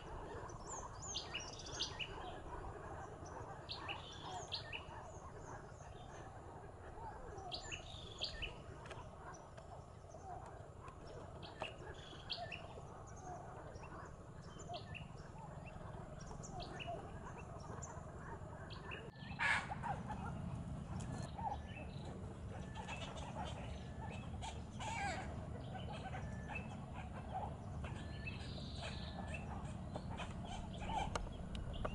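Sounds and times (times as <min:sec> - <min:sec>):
birds chirping and squawking: 0:00.0 - 0:31.9
steady low rumble: 0:07.9 - 0:31.9.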